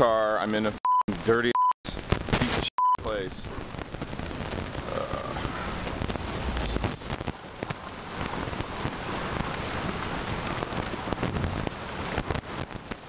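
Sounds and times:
wind: 0.0s - 13.0s
crackles: 1.0s - 13.0s
water noise: 2.9s - 13.0s.

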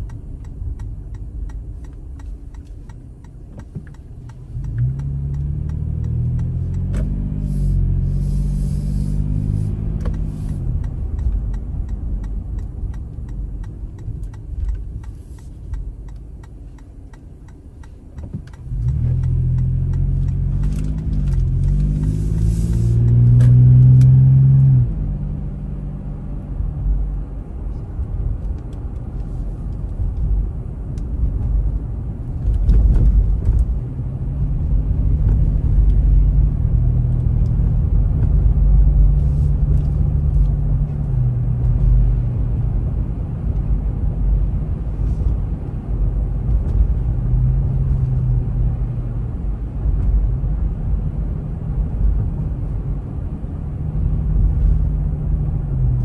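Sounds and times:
car engine accelerating: 0.0s - 56.0s
low road rumble: 0.0s - 56.0s.

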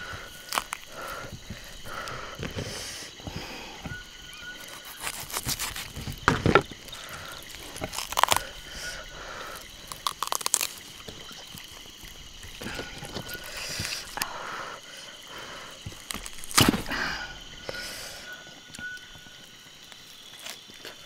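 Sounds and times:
cooked chicken tearing: 0.4s - 0.9s, 4.6s - 8.7s, 9.6s - 14.3s, 15.8s - 16.8s
knife scraping: 4.6s - 6.6s.

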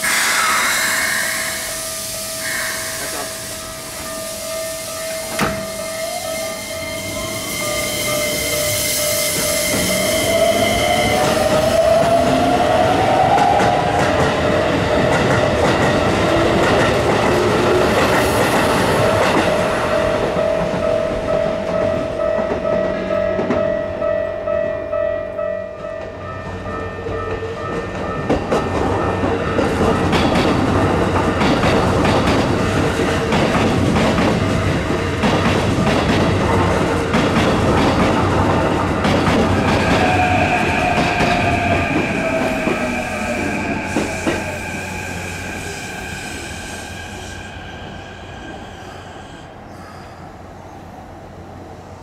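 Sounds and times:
train wheels clattering over rail joints: 27.8s - 40.2s.

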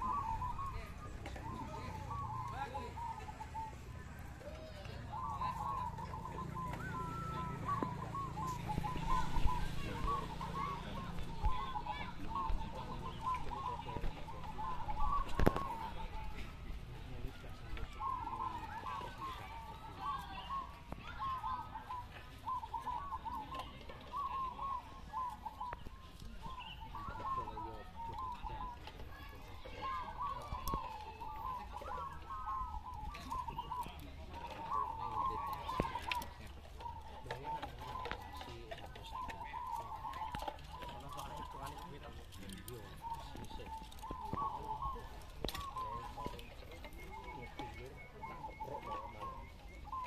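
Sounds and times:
doves cooing in chorus: 0.0s - 50.0s.

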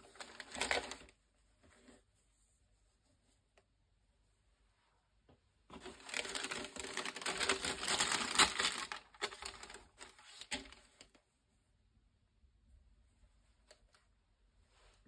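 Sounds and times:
tissue paper crinkling: 0.0s - 1.2s, 5.7s - 11.2s.

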